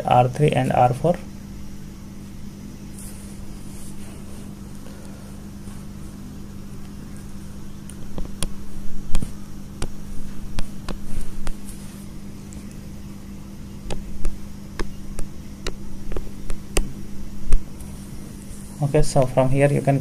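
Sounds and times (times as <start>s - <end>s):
low electrical hum: 0.0s - 20.0s
stylus tapping on tablet: 8.0s - 11.6s, 13.8s - 17.7s.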